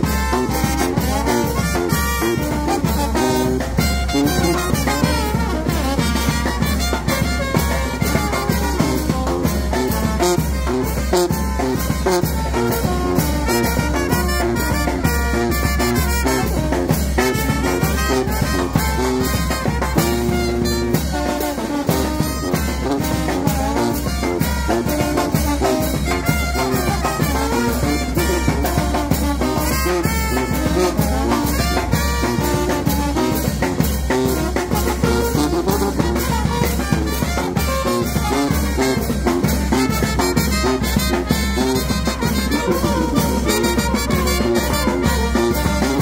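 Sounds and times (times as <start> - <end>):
bass drum: 0.0 - 46.0
snare drum: 0.0 - 46.0
trombone: 0.0 - 46.0
trumpet: 0.0 - 46.0
sousaphone: 41.6 - 46.0.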